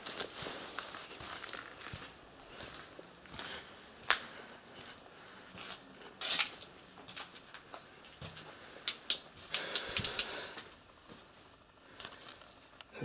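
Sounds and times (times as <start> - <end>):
footsteps crunching dry leaves: 0.0 - 7.4.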